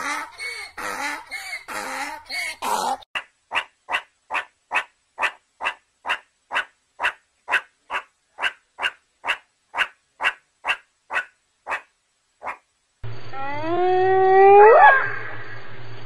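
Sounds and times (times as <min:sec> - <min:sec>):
meerkat calling: 0:00.8 - 0:12.6.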